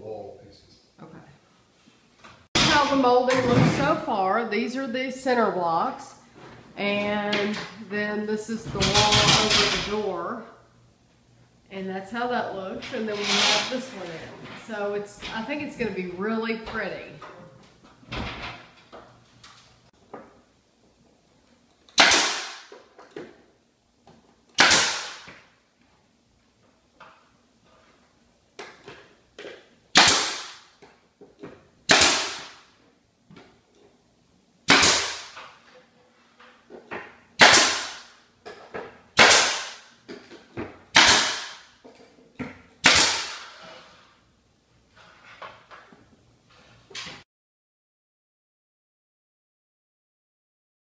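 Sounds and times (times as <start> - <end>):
nail gun firing: 21.9 - 22.8, 24.6 - 25.4, 29.9 - 30.7, 31.9 - 32.6, 34.7 - 35.4, 37.4 - 38.1, 39.2 - 39.9, 40.9 - 41.7, 42.8 - 43.6.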